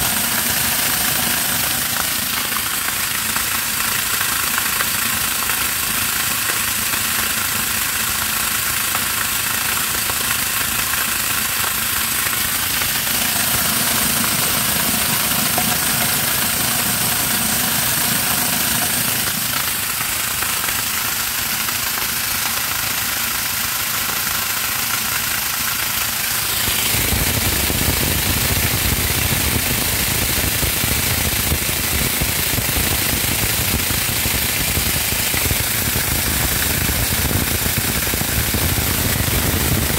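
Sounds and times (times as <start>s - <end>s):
electric grinder motor running: 0.0s - 3.6s, 11.0s - 20.8s, 26.0s - 39.9s
corn kernels rattling: 9.8s - 24.6s.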